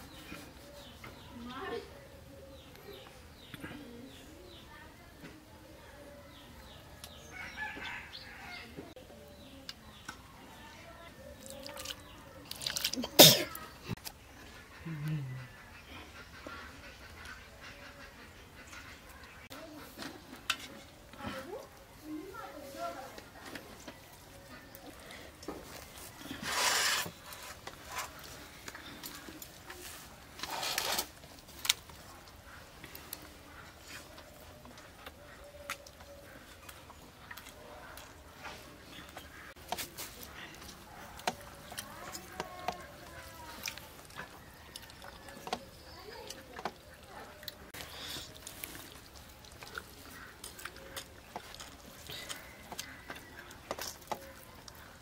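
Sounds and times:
chewing: 11.3 - 15.8, 23.1 - 55.0
faint eating ticks: 30.4 - 55.0
fingers mixing food on steel plate: 39.0 - 55.0.

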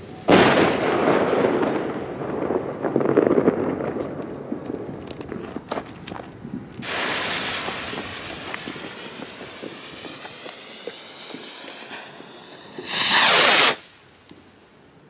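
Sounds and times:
small crackles: 3.3 - 6.9
rocket launching whoosh: 6.8 - 13.9.

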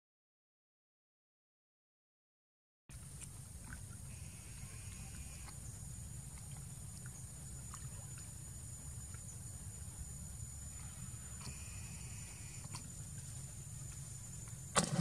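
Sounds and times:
water splashing and lapping: 4.9 - 10.0, 14.8 - 15.0.

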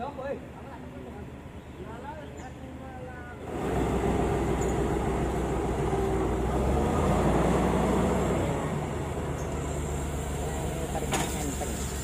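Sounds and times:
diesel engine running: 3.1 - 12.0.

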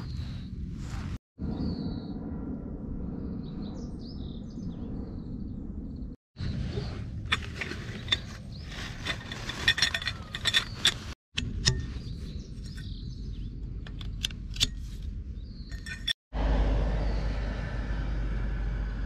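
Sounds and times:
metal tent poles clinking: 7.2 - 16.2.

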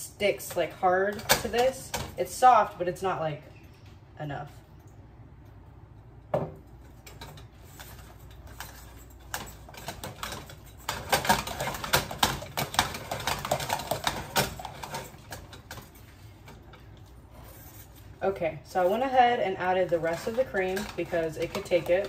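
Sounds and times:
utensil mashing potatoes in metal pot: 7.4 - 17.0, 18.7 - 22.0.

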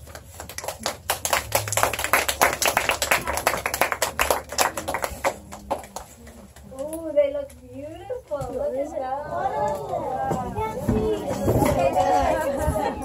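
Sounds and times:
children clapping: 0.0 - 6.9.

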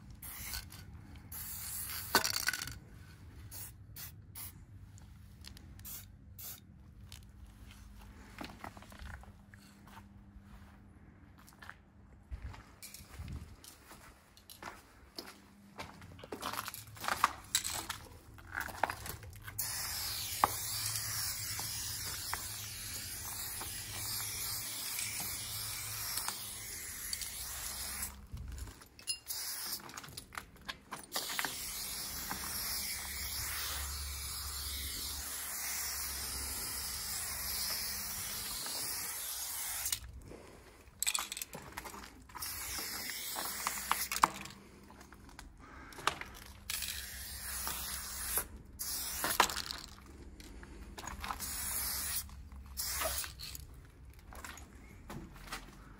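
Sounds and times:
spray paint can hissing: 0.2 - 2.8, 3.5 - 4.6, 5.8 - 6.6, 19.5 - 28.2, 29.2 - 29.9, 31.1 - 40.0, 42.4 - 44.2, 46.7 - 49.9, 51.3 - 53.6.

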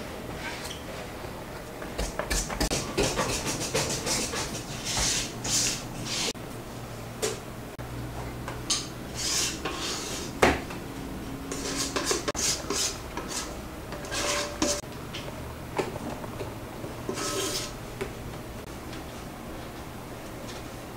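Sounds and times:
batter scraped from metal bowl: 3.0 - 6.4, 9.2 - 10.4, 11.5 - 14.8, 17.1 - 17.8.

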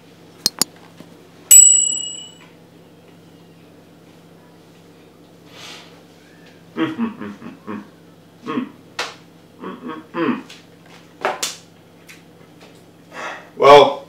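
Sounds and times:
man humming mmm: 9.6 - 10.5.

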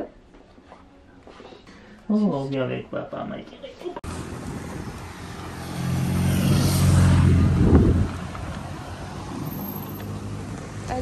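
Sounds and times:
car driving past: 4.0 - 11.0.

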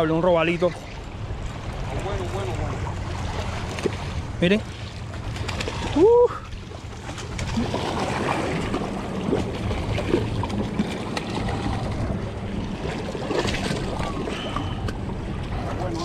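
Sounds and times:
water splashing against rocks: 3.1 - 15.0.

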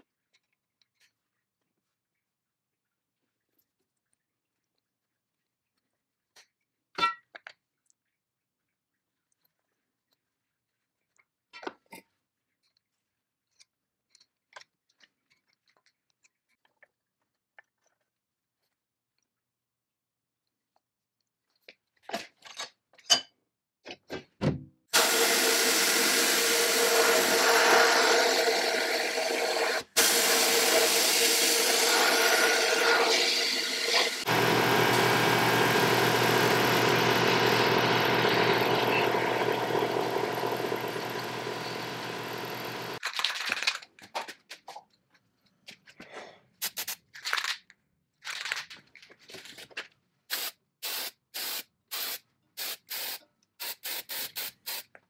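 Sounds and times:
spray paint bursts: 25.0 - 34.3, 46.6 - 47.0, 50.3 - 54.9.

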